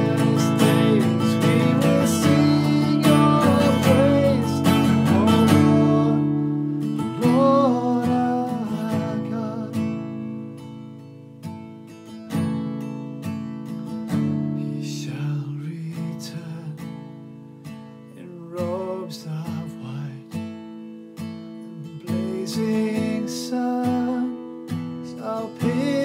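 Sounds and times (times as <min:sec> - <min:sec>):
man singing: 0:00.0 - 0:10.2, 0:14.6 - 0:17.0, 0:18.2 - 0:20.4, 0:21.8 - 0:26.0
acoustic guitar strummed: 0:00.0 - 0:26.0.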